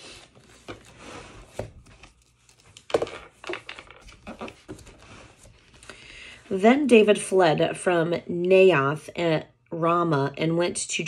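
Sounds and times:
paper pages rustling: 0.0s - 5.9s.

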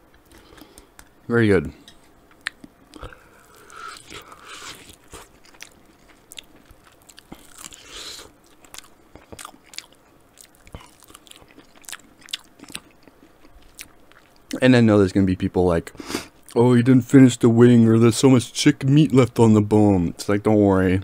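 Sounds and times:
chicken wing being chewed: 2.3s - 14.5s.

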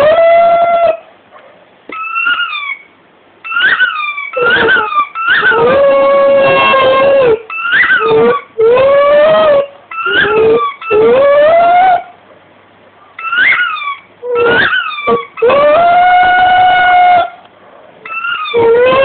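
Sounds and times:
dog howling: 0.0s - 1.1s, 3.5s - 12.2s, 13.2s - 17.4s, 18.0s - 19.0s
squeaky toy squealing: 1.9s - 12.1s, 13.2s - 17.4s, 18.1s - 19.0s.

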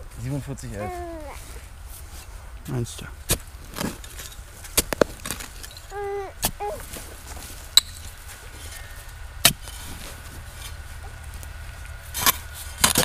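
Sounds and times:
spade chopping into soil: 3.3s - 4.0s, 4.7s - 5.5s, 9.4s - 9.8s, 12.1s - 13.0s.

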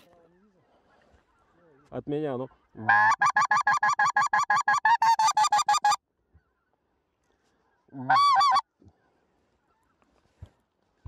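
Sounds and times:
goose call honks: 2.8s - 6.0s, 8.0s - 8.6s.

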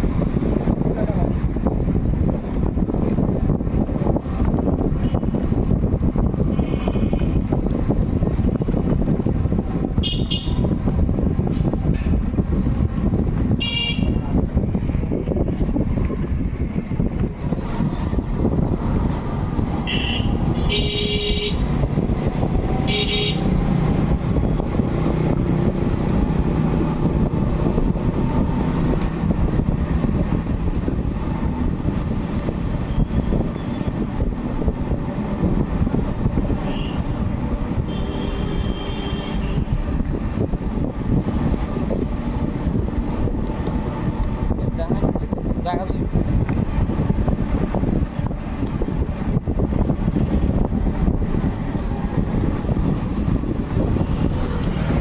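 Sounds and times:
traffic rumble: 0.0s - 55.0s
wind rumble: 0.0s - 55.0s
vehicle horn toots: 6.5s - 7.4s, 10.0s - 10.7s, 13.6s - 14.2s, 19.8s - 21.7s, 22.9s - 23.5s, 36.6s - 37.1s, 37.9s - 39.8s.

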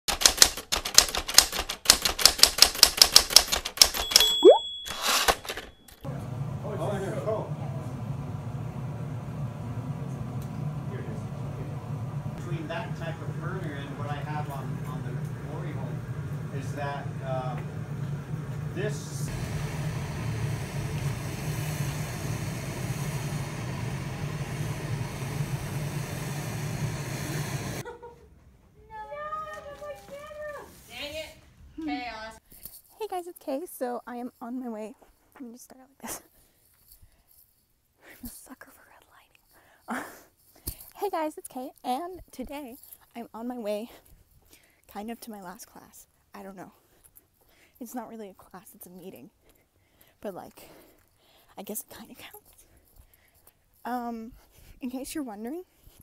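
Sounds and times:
typewriter keys striking: 0.1s - 5.6s
typewriter bell ding: 3.8s - 6.0s
gas burners roaring: 6.1s - 27.8s.

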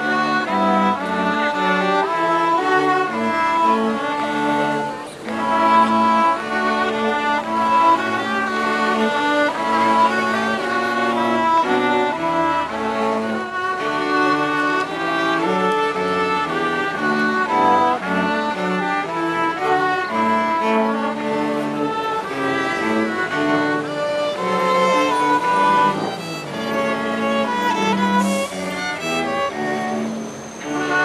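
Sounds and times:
string ensemble with cello: 0.0s - 31.0s.

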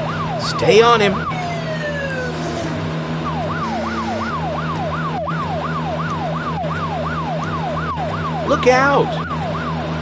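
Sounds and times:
falling tone: 0.0s - 6.2s
cartoon police siren wailing: 0.0s - 9.8s.

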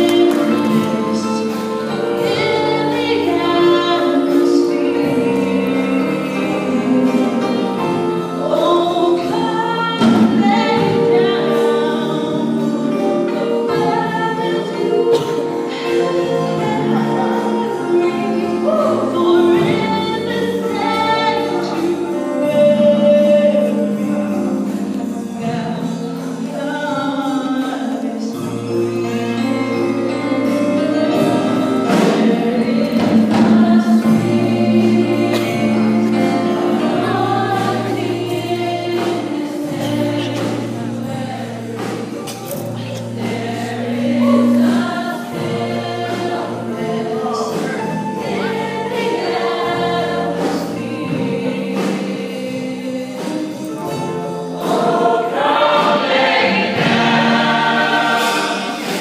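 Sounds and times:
choir singing gospel music: 0.0s - 59.0s.

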